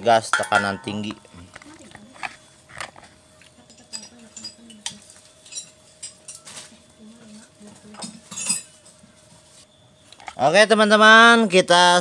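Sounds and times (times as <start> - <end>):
metallic clicks and clinks: 3.7 - 6.5.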